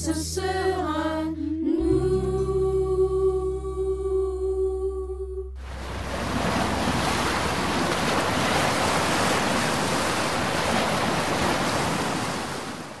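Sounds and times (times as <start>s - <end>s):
steady rushing noise: 5.6s - 13.0s.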